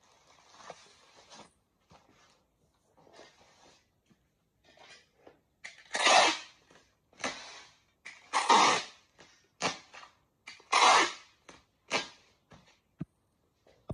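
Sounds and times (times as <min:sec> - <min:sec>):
packing tape ripping off dispenser: 0:05.7 - 0:06.6, 0:07.2 - 0:12.2.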